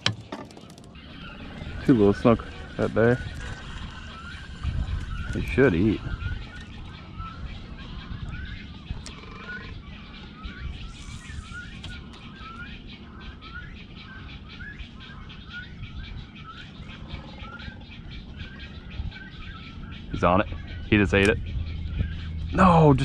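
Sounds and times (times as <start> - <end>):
bird calling: 0.0 - 23.0
low rumble: 1.0 - 23.0.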